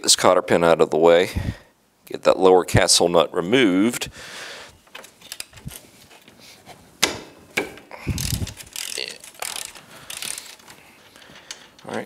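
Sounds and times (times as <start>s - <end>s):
sharp metal clicks: 7.0s - 12.0s
hand ratchet clicking: 8.0s - 12.0s.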